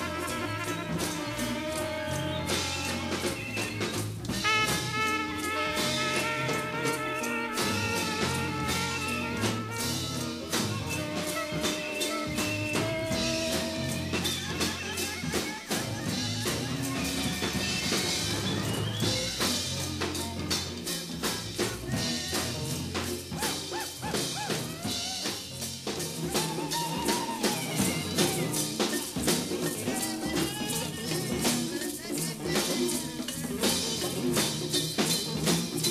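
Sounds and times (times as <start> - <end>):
busy drums and percussion: 0.0 - 35.9
free jazz ensemble playing: 0.0 - 35.9.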